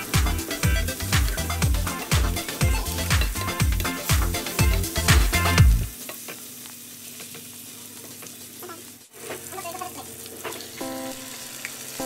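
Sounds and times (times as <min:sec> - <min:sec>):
vegetables sizzling in oil: 0:00.0 - 0:12.0
spatula scraping pan: 0:01.0 - 0:06.3.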